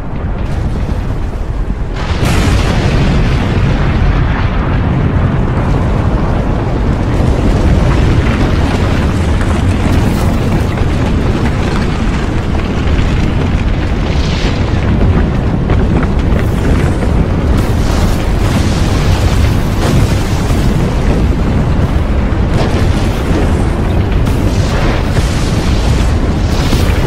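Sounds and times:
deep rumble: 0.0 - 27.0
explosive booms: 0.0 - 27.0.

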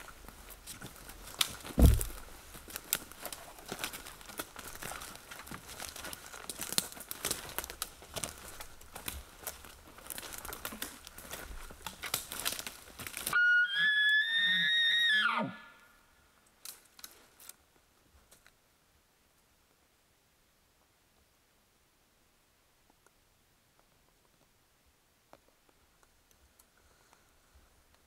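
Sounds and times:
footsteps crunching through sticks: 0.0 - 13.4, 16.6 - 17.6
heavy thump: 1.8 - 2.2
high whistled elk call: 13.3 - 15.9.

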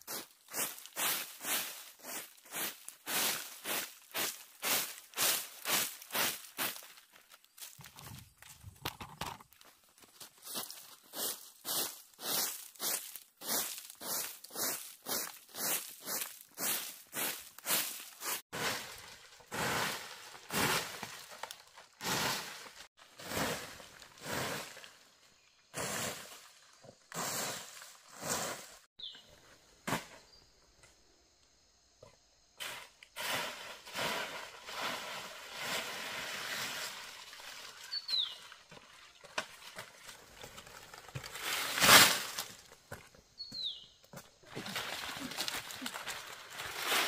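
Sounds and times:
bird chirping: 29.0 - 29.4, 37.7 - 39.3, 43.3 - 44.1.

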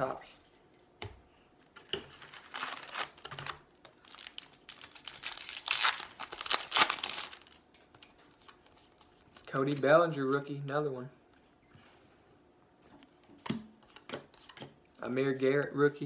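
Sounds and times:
foil wrapper crinkling and tearing: 2.1 - 7.7.

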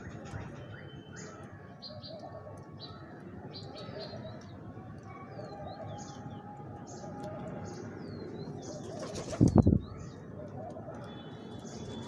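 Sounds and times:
pigeon wings flapping: 8.8 - 9.6.

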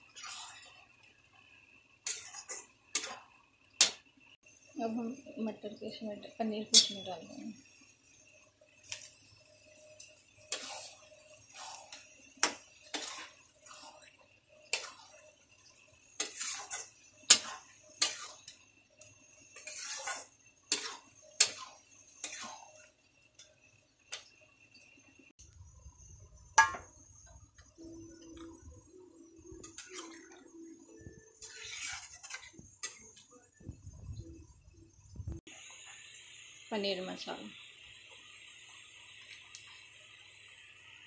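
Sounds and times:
metal spatula scraping and clinking: 0.0 - 0.9, 2.0 - 4.0, 6.6 - 7.8, 8.8 - 24.3, 29.6 - 33.2.

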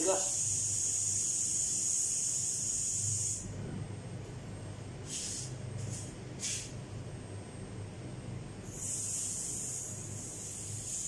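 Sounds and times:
air hissing from tyre valve: 0.2 - 3.4, 8.6 - 11.0.

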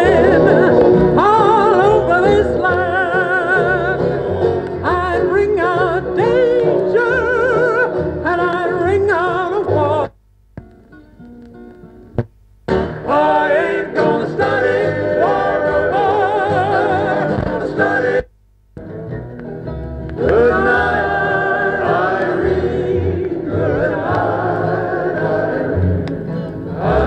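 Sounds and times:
vocal music from a record player: 0.0 - 10.3, 12.6 - 18.4, 20.2 - 27.0.

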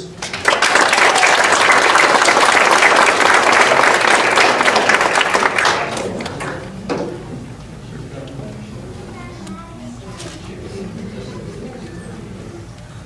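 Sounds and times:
audience applauding and cheering: 0.0 - 6.7.

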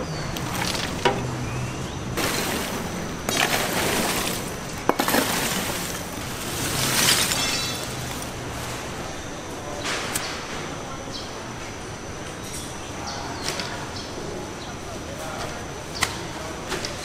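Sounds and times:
street food stall clatter: 0.0 - 17.0.

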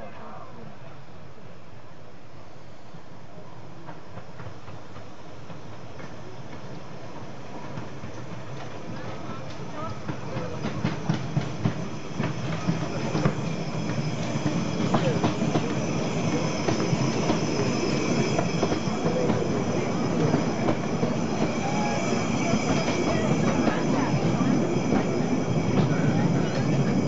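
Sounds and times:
wheels squealing against rails: 5.8 - 27.0
train wheels clicking over rail joints: 7.6 - 27.0.

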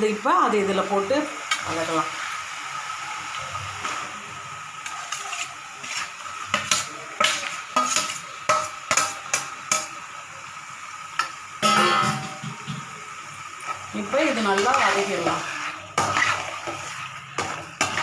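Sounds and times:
masala sizzling in a pan: 0.0 - 18.0
metal skimmer scraping pan: 14.2 - 18.0.

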